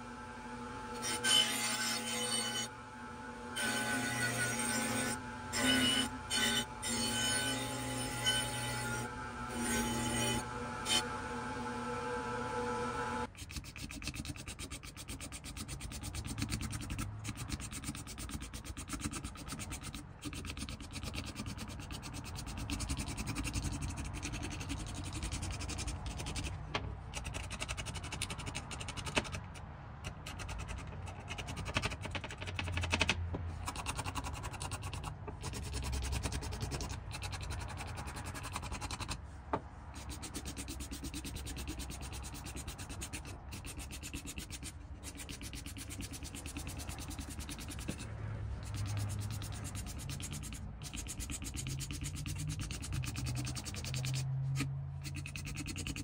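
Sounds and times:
scraper rasping on wood: 13.3s - 26.6s, 30.2s - 39.2s, 40.0s - 56.0s.

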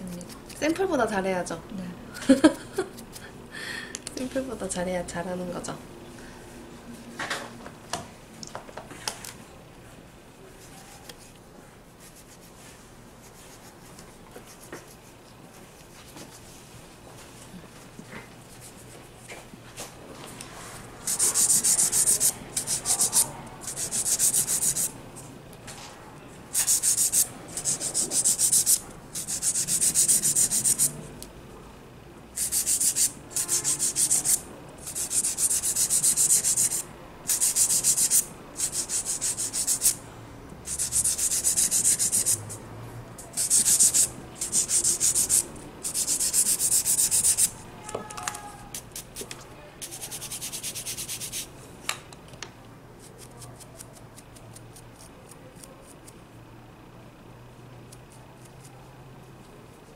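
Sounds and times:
nail file scraping fingernails: 21.0s - 24.9s, 26.5s - 30.9s, 32.4s - 40.0s, 40.7s - 42.6s, 43.2s - 47.5s, 48.7s - 51.5s, 53.0s - 56.0s, 57.9s - 58.7s.

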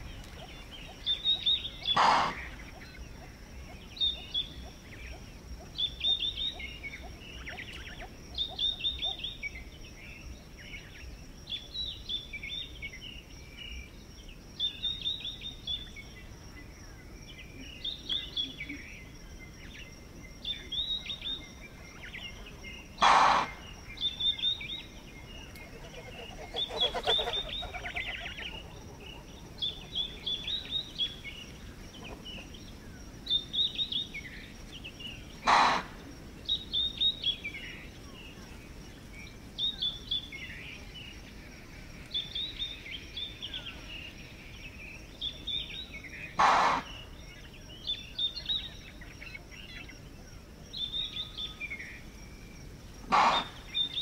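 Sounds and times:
songbirds calling: 0.0s - 54.0s
impala snorting alarm calls: 1.8s - 3.0s, 23.0s - 24.7s, 25.6s - 30.5s, 35.4s - 36.0s, 46.4s - 47.0s, 53.1s - 53.7s.

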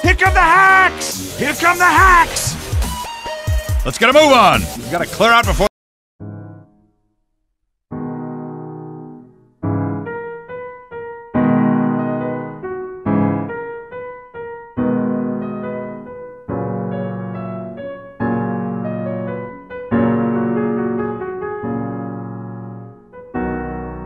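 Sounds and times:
piano chords and notes: 6.2s - 7.2s, 7.9s - 24.0s.

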